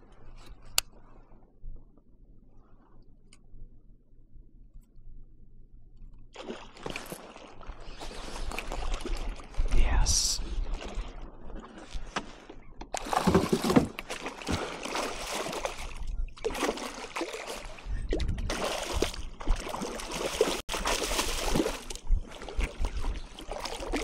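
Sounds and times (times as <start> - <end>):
water sloshing and splashing: 6.2 - 24.0.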